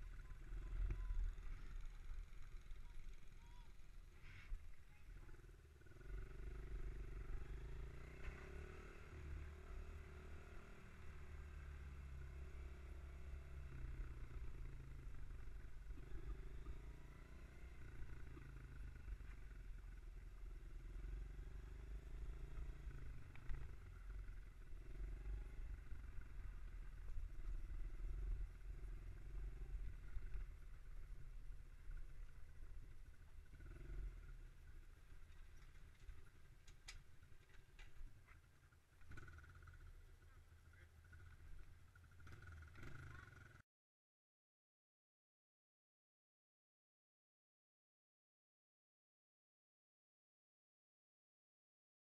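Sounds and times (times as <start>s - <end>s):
mini bike engine humming: 0.0s - 43.6s.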